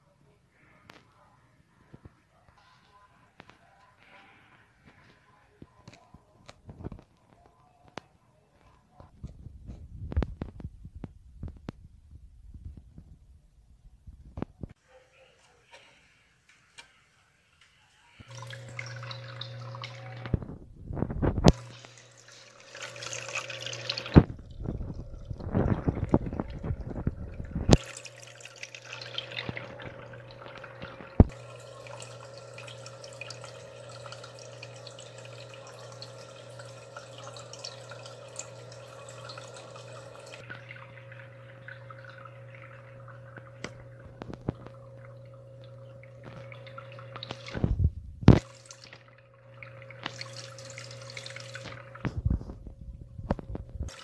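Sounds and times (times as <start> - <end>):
aquarium pump humming: 17.8 - 54.0
water pouring and splashing: 18.3 - 54.0.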